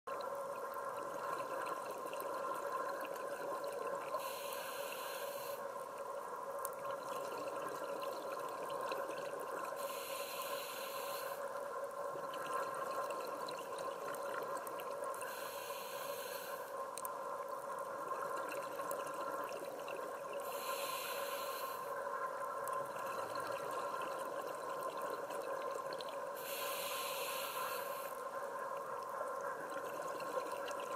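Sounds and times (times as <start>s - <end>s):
diver breathing through regulator: 4.2s - 5.6s, 9.8s - 11.4s, 15.2s - 16.7s, 20.4s - 21.9s, 26.4s - 28.2s
steady hum: 20.4s - 22.1s, 26.4s - 28.2s.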